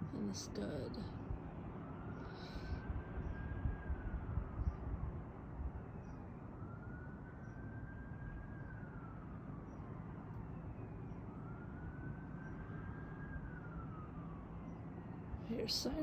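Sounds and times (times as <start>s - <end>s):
steady low rumble: 0.0s - 7.0s
faint emergency siren wailing: 0.0s - 16.0s.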